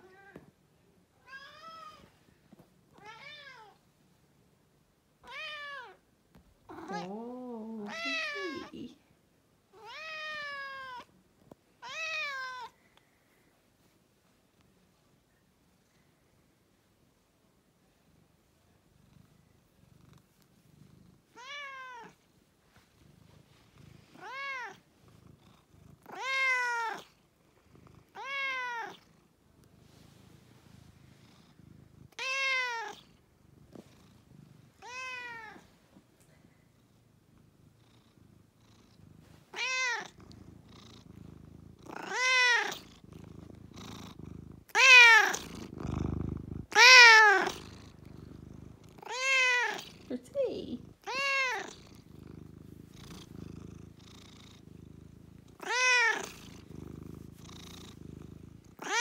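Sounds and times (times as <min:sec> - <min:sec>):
cat purring: 0:01.5 - 0:59.0
cat meowing: 0:06.7 - 0:07.2, 0:07.8 - 0:08.8, 0:09.8 - 0:11.1, 0:11.8 - 0:12.8, 0:26.1 - 0:27.0, 0:28.2 - 0:29.0, 0:32.2 - 0:33.0, 0:34.8 - 0:35.6, 0:39.5 - 0:40.1, 0:41.9 - 0:42.8, 0:44.7 - 0:45.5, 0:46.7 - 0:47.6, 0:49.0 - 0:49.9, 0:51.0 - 0:51.8, 0:55.6 - 0:56.4, 0:58.8 - 0:59.0.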